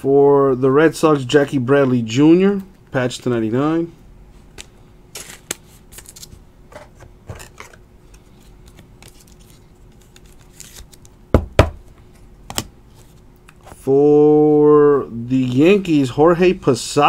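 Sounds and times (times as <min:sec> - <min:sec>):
faint steady hum: 0:00.0 - 0:17.0
cards clicking and scraping: 0:04.5 - 0:11.1.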